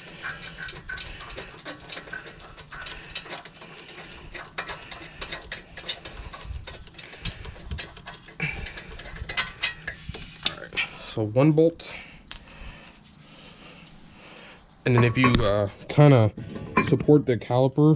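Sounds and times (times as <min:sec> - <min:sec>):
ratchet wrench clicking: 0:00.2 - 0:10.6.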